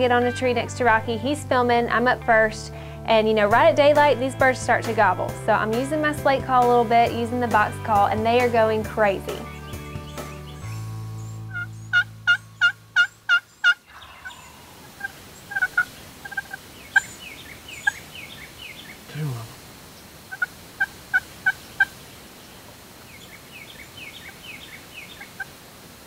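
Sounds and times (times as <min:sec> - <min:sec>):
soft background music: 0:00.0 - 0:13.3
small birds chirping: 0:09.1 - 0:25.6
turkey yelping: 0:11.5 - 0:17.2, 0:20.3 - 0:22.0.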